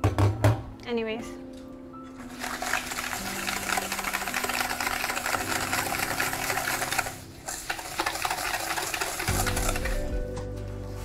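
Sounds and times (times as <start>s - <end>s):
whisk clattering in metal bowl: 2.2s - 10.2s.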